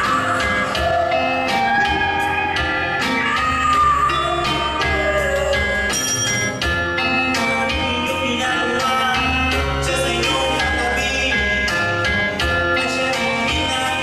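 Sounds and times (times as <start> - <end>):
woman singing: 0.0 - 6.0
live band music: 0.0 - 14.0.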